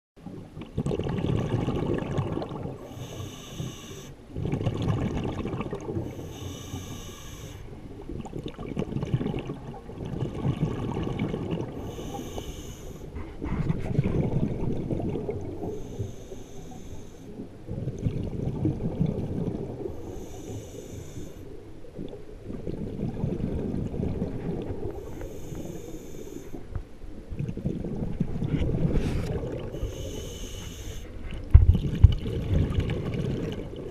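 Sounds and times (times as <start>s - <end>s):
exhaled bubbles rumbling: 0.2s - 33.9s
regulator air hiss: 2.9s - 4.2s, 6.1s - 7.7s, 11.8s - 13.1s, 15.7s - 17.4s, 20.0s - 21.5s, 25.0s - 26.6s, 29.8s - 31.1s.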